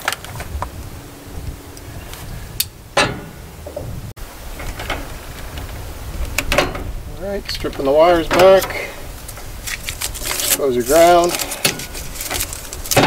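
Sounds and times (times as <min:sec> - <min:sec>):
low rumble: 0:00.0 - 0:13.0
clunks and knocks from tools: 0:06.4 - 0:06.9, 0:08.3 - 0:08.9, 0:11.5 - 0:13.0.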